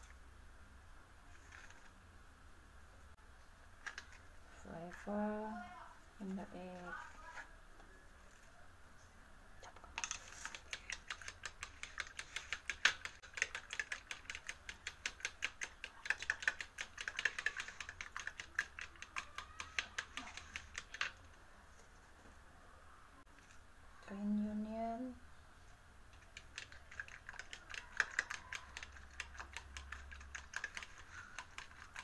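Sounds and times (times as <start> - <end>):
spoon beating eggs in bowl: 9.7 - 21.2, 26.1 - 32.0.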